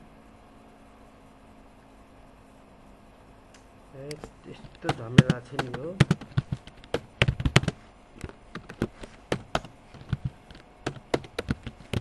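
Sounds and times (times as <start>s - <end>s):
keyboard typing clicks: 4.1s - 12.0s.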